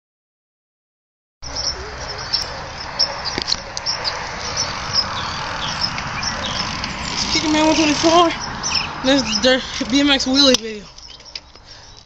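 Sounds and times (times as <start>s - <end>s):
steady rushing noise: 1.5s - 10.4s.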